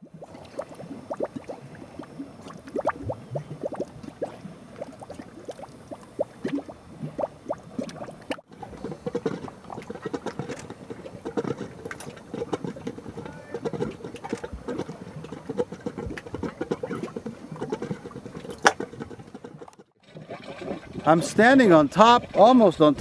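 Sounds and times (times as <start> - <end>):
mud bubbling and plopping: 0.0 - 23.0.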